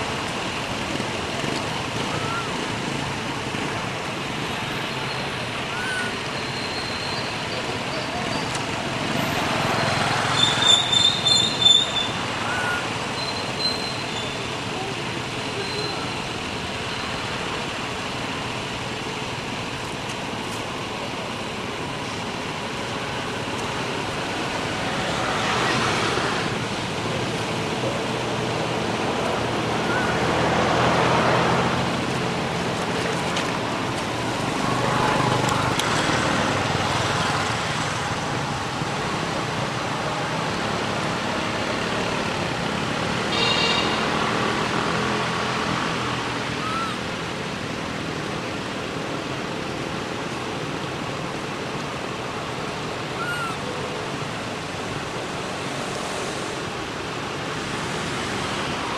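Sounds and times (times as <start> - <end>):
road traffic: 0.0 - 58.9
vehicles passing: 0.0 - 58.9
high-pitched call: 46.6 - 47.0, 53.2 - 53.7.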